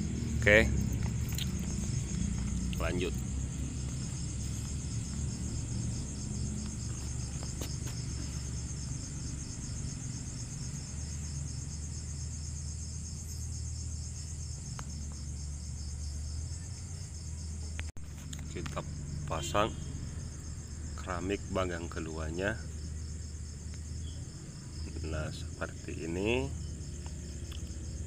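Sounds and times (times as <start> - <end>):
insects trilling: 0.0 - 28.0.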